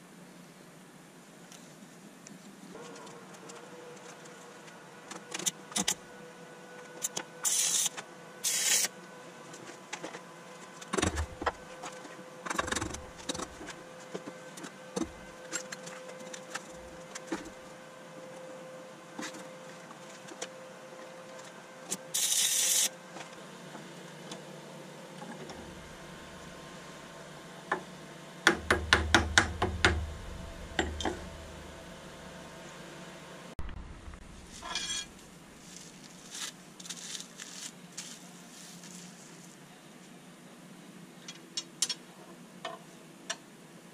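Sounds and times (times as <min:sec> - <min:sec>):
tool scraping steel plate: 0:34.6 - 0:35.2.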